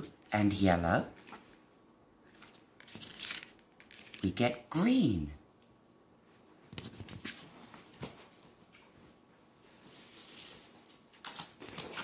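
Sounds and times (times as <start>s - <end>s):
paper rustling: 2.2s - 4.3s, 9.7s - 12.0s.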